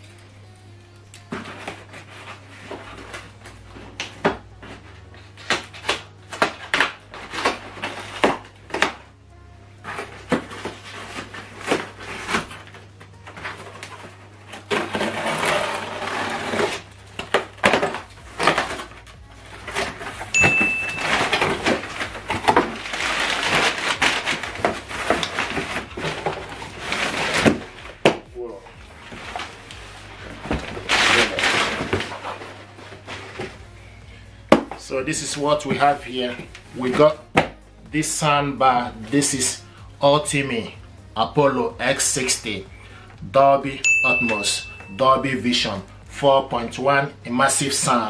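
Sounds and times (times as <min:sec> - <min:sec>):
blade scraping through packing tape: 0:09.8 - 0:20.3, 0:21.1 - 0:27.8, 0:30.7 - 0:33.5
packing paper crinkling: 0:21.0 - 0:27.8, 0:29.0 - 0:33.6.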